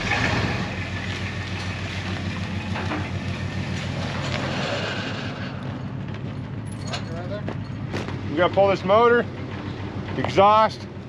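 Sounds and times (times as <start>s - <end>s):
truck engine pulsing: 0.0s - 11.0s
metal clank: 6.0s - 8.2s.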